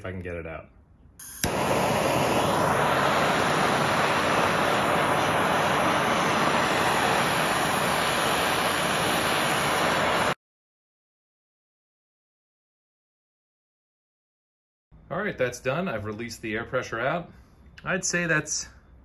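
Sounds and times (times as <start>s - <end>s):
blowtorch flame roaring: 1.2s - 10.4s
blowtorch ignition click: 1.2s - 10.4s.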